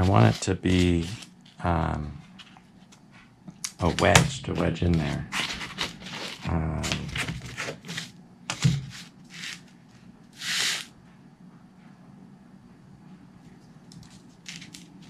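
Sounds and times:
knife cutting foam: 0.0s - 1.6s, 10.4s - 10.9s.

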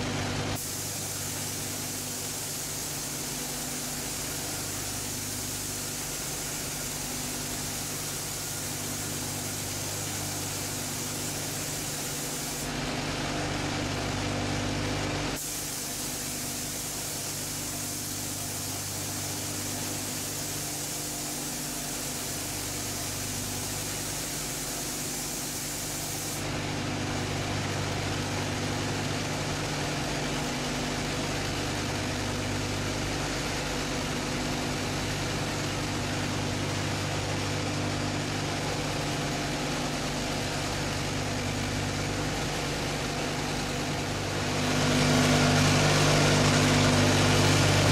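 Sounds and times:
machine hum: 0.0s - 47.9s
air hiss: 0.6s - 12.7s, 15.4s - 26.5s.

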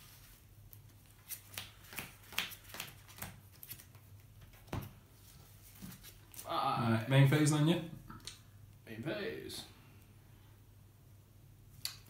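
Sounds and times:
cards snapping and tapping: 1.3s - 3.9s.

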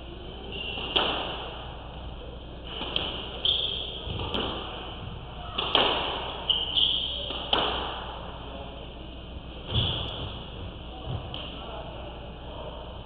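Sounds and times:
squash ball smacks: 5.6s - 6.4s.

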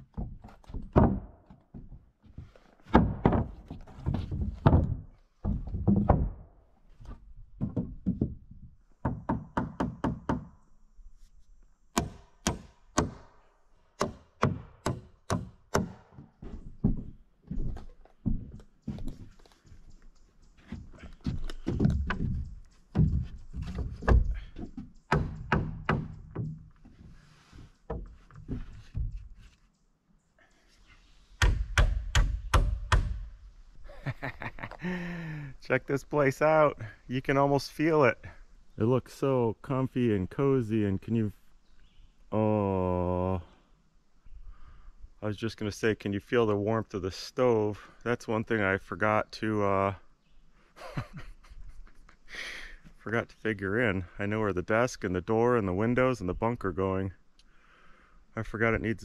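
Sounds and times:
wooden boards knocking: 0.0s - 2.0s, 2.8s - 6.5s, 7.6s - 10.5s, 20.7s - 26.9s.

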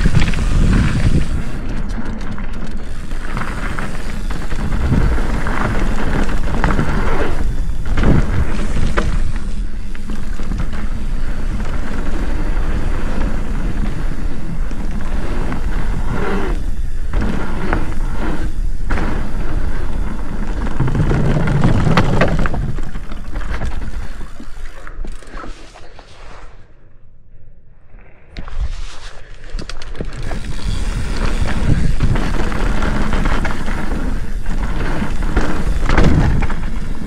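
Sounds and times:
wind buffeting microphone: 0.0s - 1.7s, 30.2s - 37.0s
knobby tyres rumbling on dirt: 0.0s - 24.8s, 29.6s - 37.0s
bike knocking and rattling: 0.0s - 25.3s, 29.5s - 37.0s.

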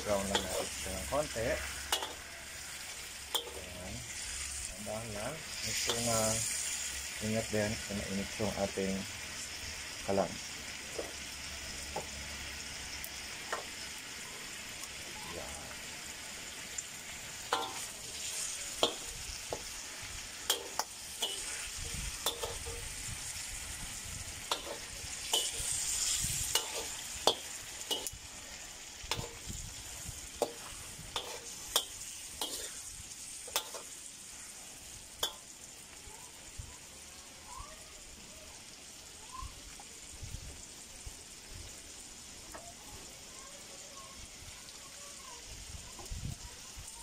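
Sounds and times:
metal ladle scraping a wok: 0.0s - 4.7s, 17.4s - 34.0s
meat sizzling in a wok: 0.0s - 47.0s.

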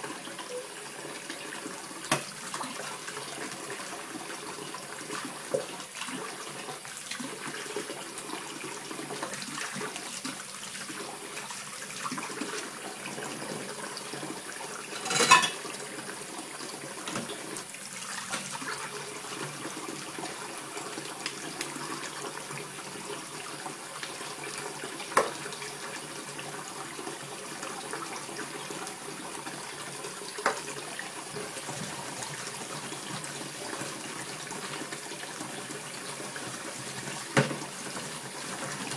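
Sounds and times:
tap running into steel sink: 2.1s - 2.3s, 37.4s - 37.7s.

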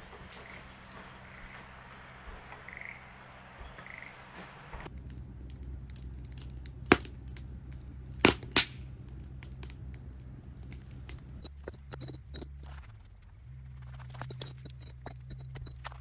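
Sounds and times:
wood fire crackling: 0.0s - 16.0s
loud fire pops: 4.8s - 11.5s.

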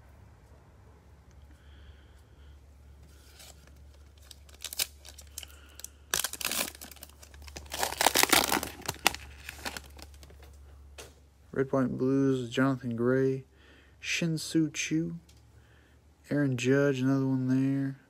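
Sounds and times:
foil wrapper tearing and crinkling: 3.3s - 10.3s.

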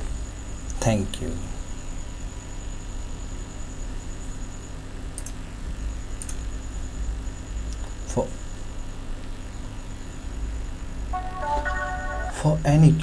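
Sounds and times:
faint hum: 0.0s - 13.0s
thin high whine: 11.1s - 12.9s.

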